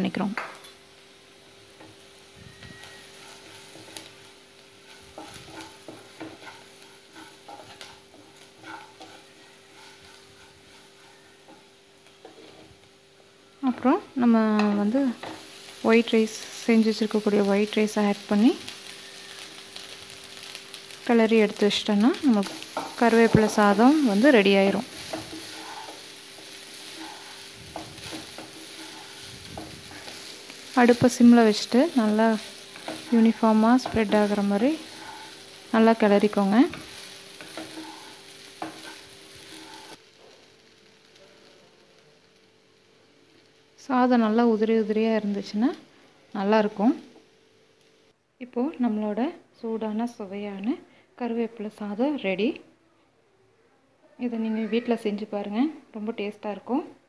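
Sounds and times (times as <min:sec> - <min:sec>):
light sizzling: 0:00.0 - 0:52.7
spatula scraping a pan: 0:01.8 - 0:12.8, 0:22.1 - 0:40.0.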